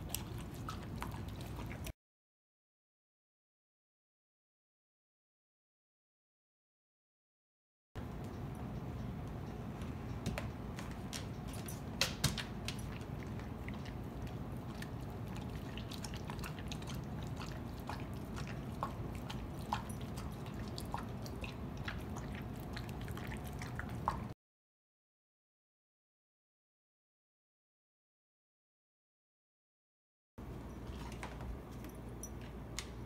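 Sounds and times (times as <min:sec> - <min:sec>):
dog chewing wet food: 0:00.0 - 0:01.9, 0:10.4 - 0:24.4.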